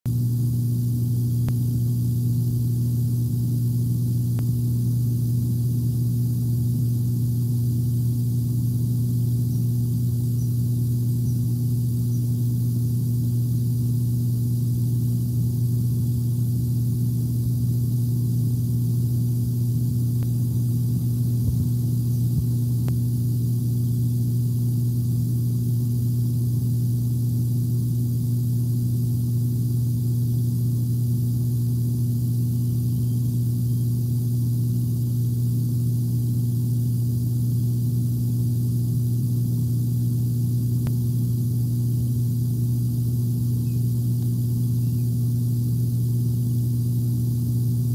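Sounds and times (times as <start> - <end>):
steady low hum: 0.1 - 47.9.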